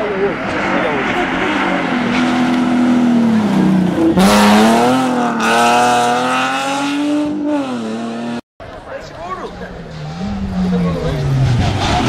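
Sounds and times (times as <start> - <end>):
rally car engine at high revs: 0.0 - 8.4, 9.8 - 12.0.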